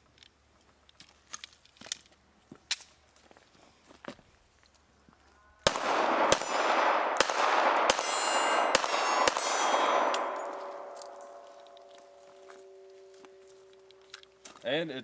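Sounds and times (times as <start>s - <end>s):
pistol shots: 5.6s - 11.7s
steel targets clanging: 7.8s - 11.9s.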